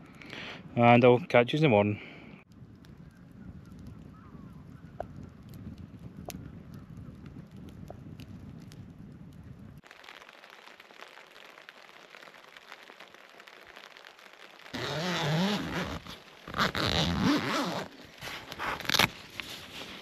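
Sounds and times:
rain pattering on tent: 0:02.5 - 0:20.0
tent zip pulled open: 0:14.7 - 0:20.0.

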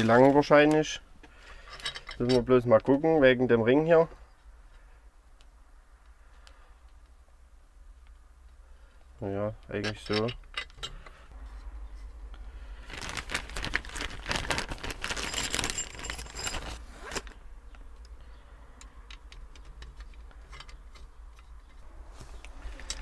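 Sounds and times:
small parts scraping and clicking: 0:00.0 - 0:02.9, 0:09.6 - 0:12.1, 0:18.8 - 0:21.8, 0:22.4 - 0:23.0
plastic bag rustling: 0:12.7 - 0:17.3.

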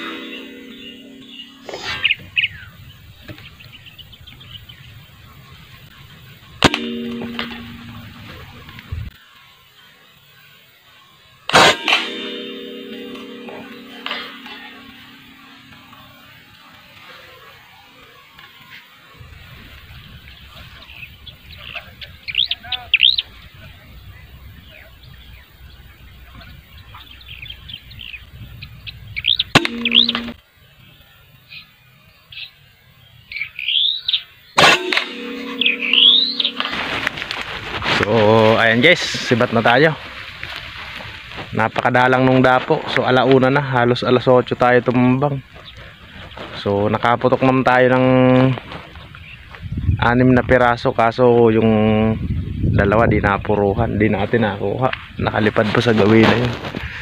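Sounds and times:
low hum: 0:00.0 - 0:03.4, 0:05.9 - 0:09.2, 0:11.8 - 0:16.7, 0:29.6 - 0:30.4, 0:34.6 - 0:41.2
air rifle shot: 0:11.5 - 0:12.7, 0:34.6 - 0:37.2
faint bird chirps: 0:12.1 - 0:37.1.

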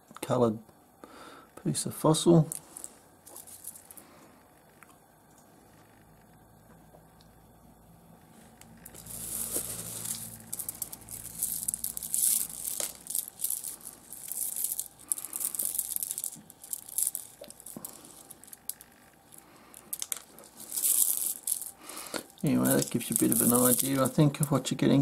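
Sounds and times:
stones rattling and clicking in hands: 0:08.8 - 0:24.6.

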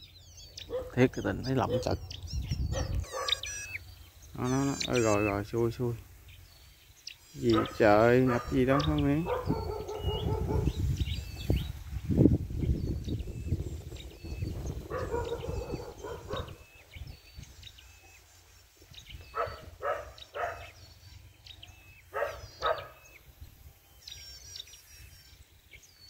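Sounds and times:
small birds chirping: 0:00.0 - 0:26.0
dogs barking: 0:00.6 - 0:03.8, 0:04.5 - 0:05.4, 0:07.4 - 0:11.2, 0:14.5 - 0:16.7, 0:19.2 - 0:23.2.

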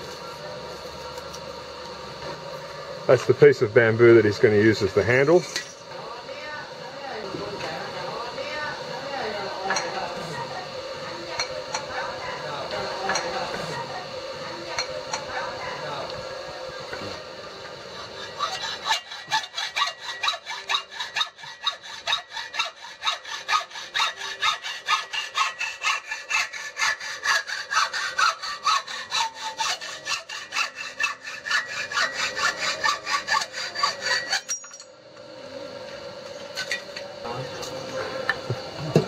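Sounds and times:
hacksaw cutting metal tube: 0:17.9 - 0:34.8.

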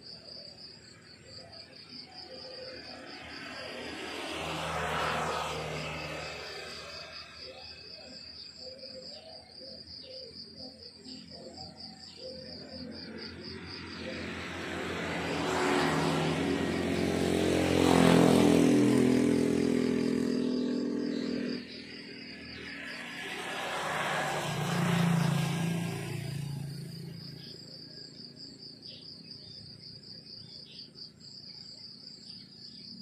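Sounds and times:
crickets chirping: 0:00.0 - 0:33.0
vehicle engine passing: 0:02.5 - 0:08.6, 0:12.1 - 0:28.4.

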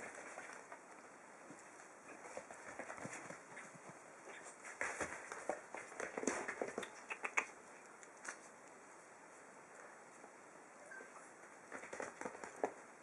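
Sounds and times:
puppies scuffling on bedding: 0:00.0 - 0:07.0.

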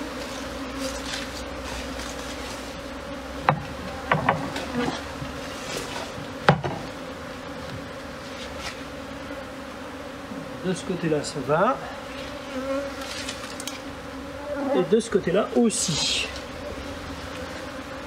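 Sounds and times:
bees buzzing: 0:00.0 - 0:18.0
wooden box knocks: 0:03.4 - 0:04.6, 0:06.5 - 0:06.8.

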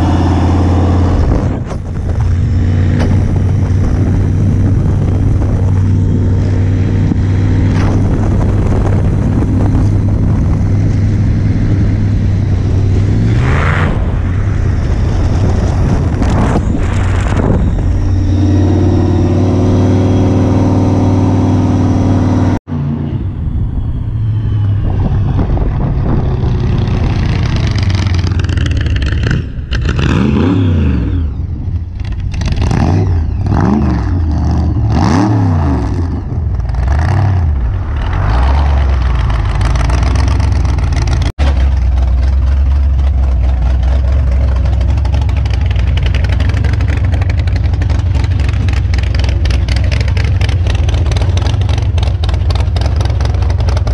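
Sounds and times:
loud car engine revving: 0:00.0 - 0:23.6, 0:24.4 - 0:53.9
car driving by: 0:35.4 - 0:53.9.

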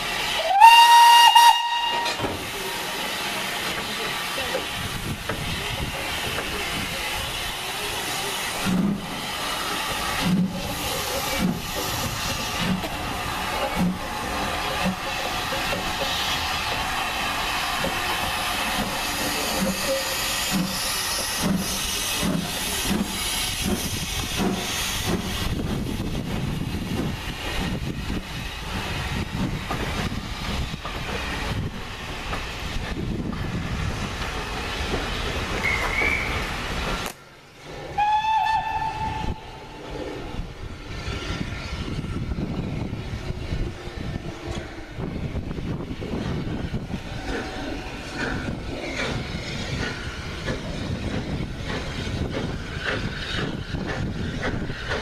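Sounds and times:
steam locomotive exhaust beats: 0:00.0 - 0:37.2, 0:37.9 - 0:55.0
hissing steam: 0:00.0 - 0:55.0
steam whistle blast: 0:00.4 - 0:02.2, 0:38.0 - 0:39.5.

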